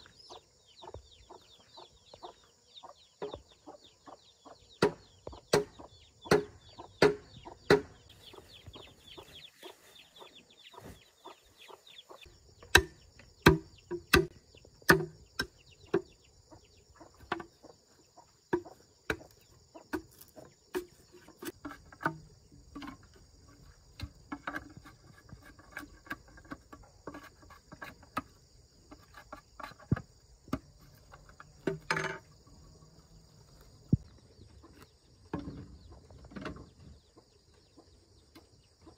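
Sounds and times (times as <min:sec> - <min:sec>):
chickens clucking: 0:00.0 - 0:38.9
machete chopping bamboo: 0:04.8 - 0:08.0, 0:12.7 - 0:15.6.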